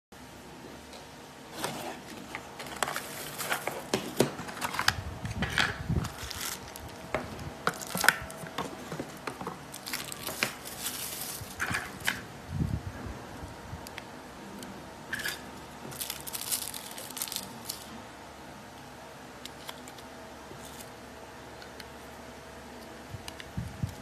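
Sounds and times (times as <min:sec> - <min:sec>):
plastic crinkling: 0:02.6 - 0:12.2, 0:15.2 - 0:18.0.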